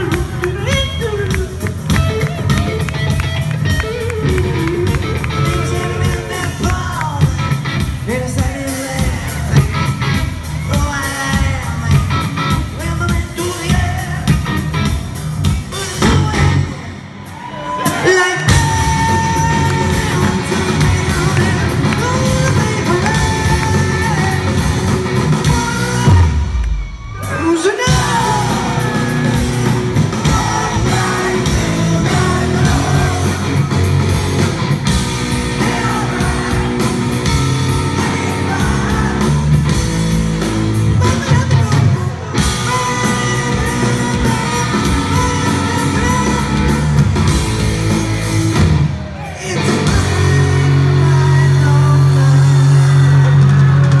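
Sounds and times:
live rock band playing: 0.0s - 54.0s
person singing: 17.8s - 26.6s, 27.2s - 34.1s, 35.3s - 39.9s, 41.0s - 47.0s, 49.2s - 54.0s.

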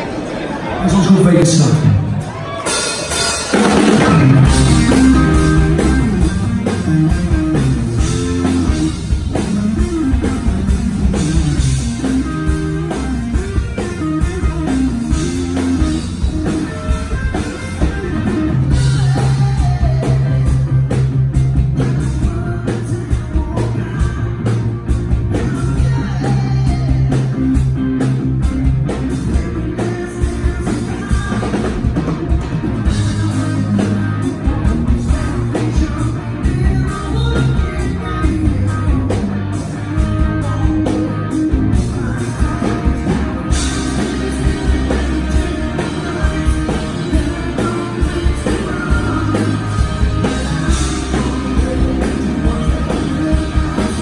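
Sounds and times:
electric guitars: 0.0s - 54.0s
keyboard: 0.0s - 54.0s
steady bass line: 0.8s - 54.0s
drum kit: 0.9s - 54.0s.

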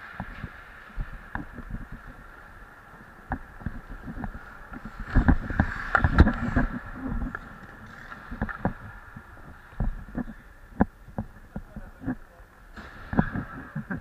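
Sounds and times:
skates scraping ice: 0.0s - 14.0s
steady hum: 0.0s - 14.0s
sharp crack: 12.7s - 14.0s.

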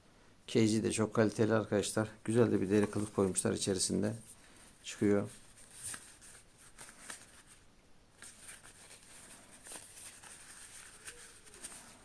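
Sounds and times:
pouch rustling and ticks: 8.2s - 12.0s.

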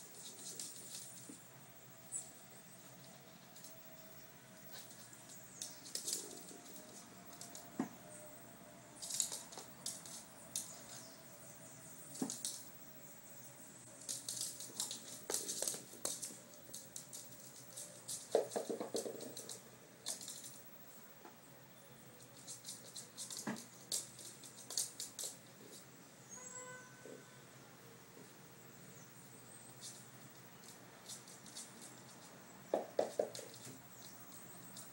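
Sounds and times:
dog claws clicking on hard floor: 4.7s - 8.2s, 9.0s - 11.0s, 12.1s - 12.7s, 14.0s - 20.7s, 22.2s - 25.8s, 29.8s - 34.9s.

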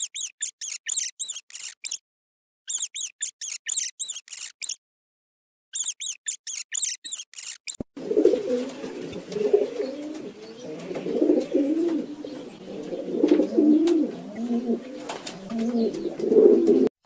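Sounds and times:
rat squeaking: 0.0s - 2.0s, 2.7s - 4.8s, 5.7s - 7.9s
pigeons cooing: 8.0s - 16.9s.

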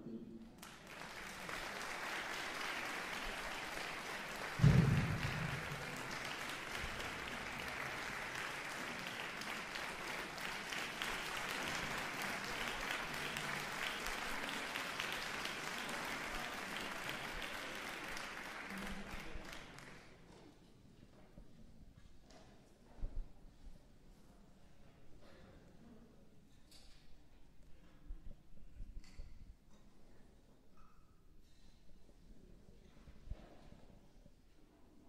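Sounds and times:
audience applauding: 0.6s - 20.0s
loud low thump: 4.6s - 5.9s.

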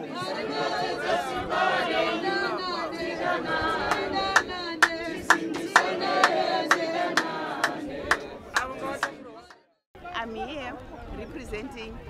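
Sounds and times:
group singing unaccompanied: 0.0s - 9.7s
rhythmic hand claps: 3.1s - 9.6s.

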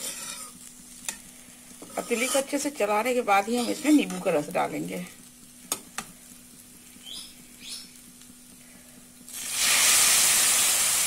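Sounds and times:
loud sizzle in hot pan: 0.0s - 11.0s.

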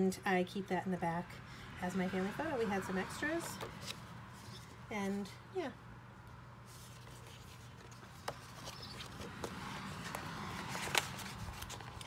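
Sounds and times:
paper cards rustling and sliding: 3.1s - 5.2s, 6.6s - 12.0s.

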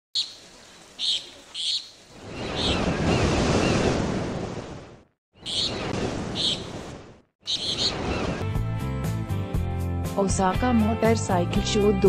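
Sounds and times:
surf rushing in: 2.1s - 5.0s.

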